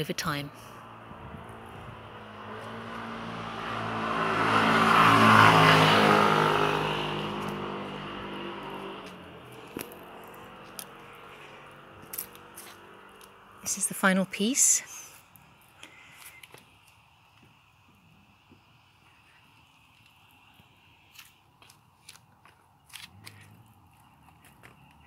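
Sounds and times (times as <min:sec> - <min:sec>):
car driving past: 0:00.5 - 0:13.6.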